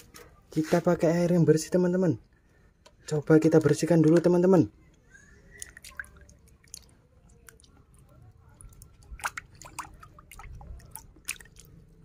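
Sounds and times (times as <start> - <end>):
water splashing and dripping: 5.4 - 12.0.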